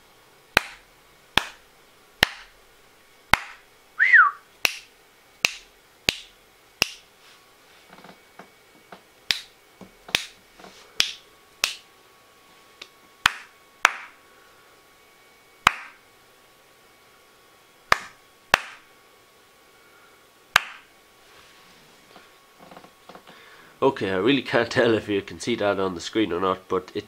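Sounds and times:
fingers snapping: 1.4s - 1.6s, 4.6s - 7.1s, 9.3s - 10.4s, 11.0s - 11.8s, 12.8s - 14.1s, 15.6s - 16.0s, 17.9s - 18.8s, 20.6s - 20.8s.

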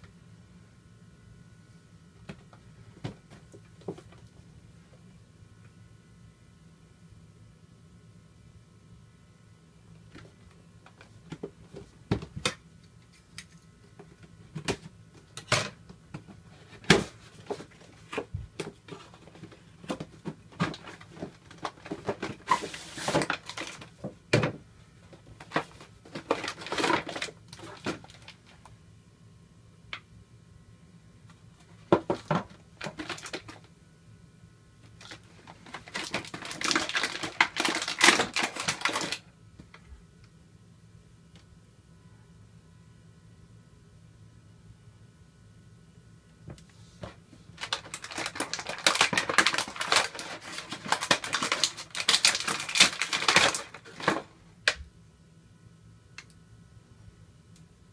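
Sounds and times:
cardboard box and plastic tray handled: 14.6s - 24.6s, 25.2s - 28.4s, 35.0s - 39.2s, 47.0s - 54.3s
plastic crinkling: 16.6s - 24.1s, 25.2s - 28.6s, 31.8s - 33.7s, 35.0s - 39.3s, 47.6s - 54.3s.

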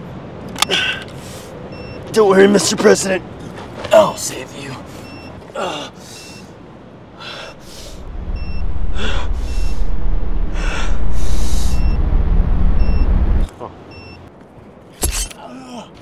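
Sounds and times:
short electronic beeps: 1.7s - 2.0s, 8.0s - 14.3s
man breathing hard: 7.1s - 8.0s
loud deep rumble: 7.6s - 13.5s.

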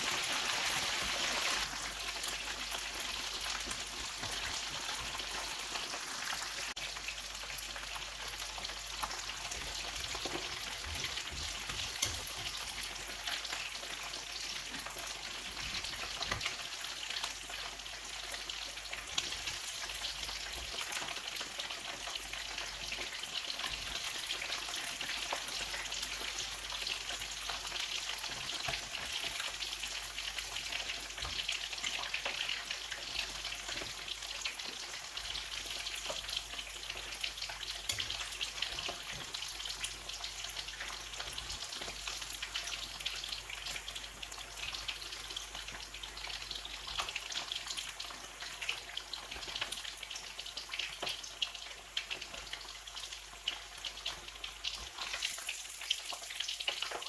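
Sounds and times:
food deep-frying in oil: 0.0s - 57.0s
oil popping and crackling: 0.0s - 57.0s.

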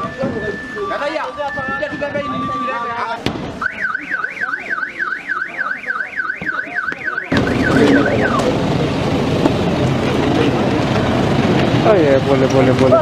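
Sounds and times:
loud steady rushing noise: 0.0s - 13.0s
electronic siren warbling: 3.6s - 8.5s.

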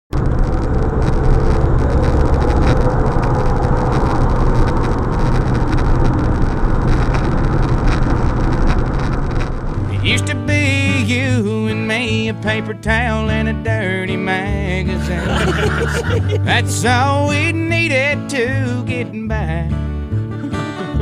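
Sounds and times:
car road and engine noise: 0.1s - 10.9s
country song with singing: 9.9s - 21.0s.

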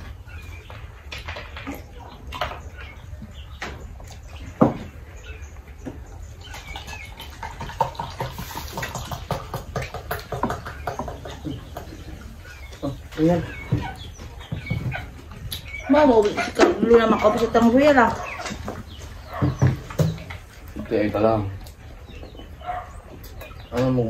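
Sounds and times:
people chewing and lip-smacking: 5.5s - 13.2s, 21.5s - 23.9s.

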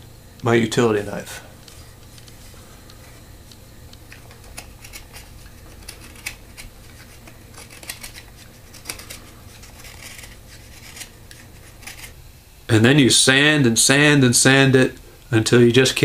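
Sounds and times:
knife scraping wood: 4.2s - 12.2s.

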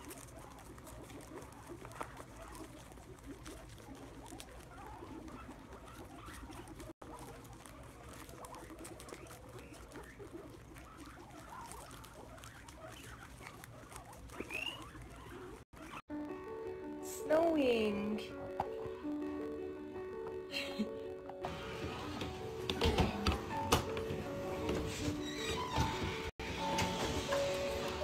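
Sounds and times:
guinea pigs munching: 0.0s - 28.0s
soft squeaks: 22.8s - 26.3s.

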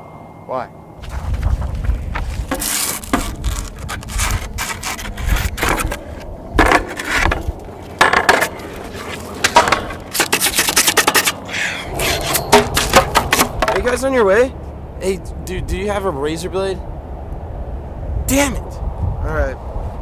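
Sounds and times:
rock rasping on griptape: 2.2s - 14.0s.

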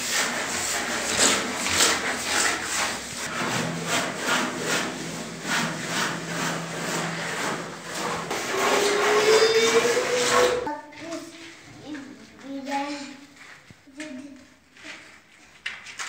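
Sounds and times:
rhythmic scraping strokes: 0.0s - 11.7s.

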